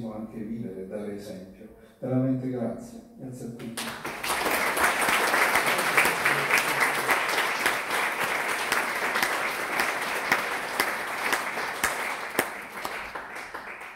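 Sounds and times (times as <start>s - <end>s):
audience applauding: 3.8s - 13.9s.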